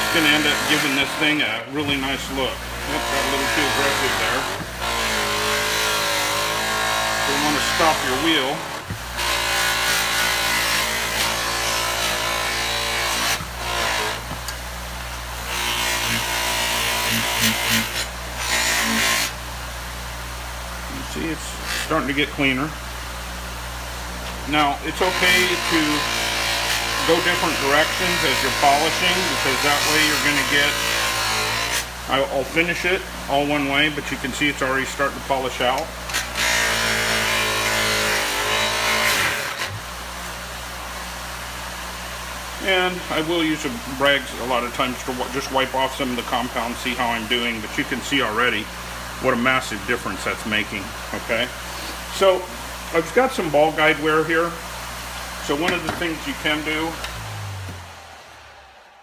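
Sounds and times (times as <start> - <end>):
bench buffer motor hum: 0.0 - 34.0, 51.5 - 58.8.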